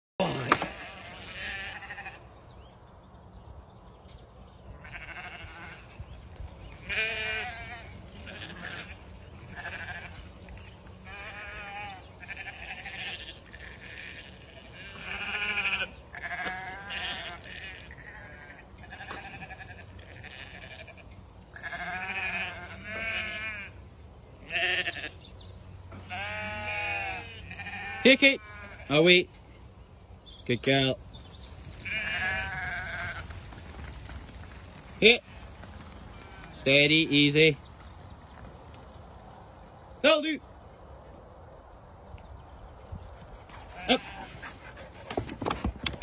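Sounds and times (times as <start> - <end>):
sheep bleating: 0.2 - 2.3, 4.8 - 6.0, 6.8 - 23.8, 24.4 - 25.2, 25.9 - 29.0, 31.8 - 33.3, 43.8 - 44.3.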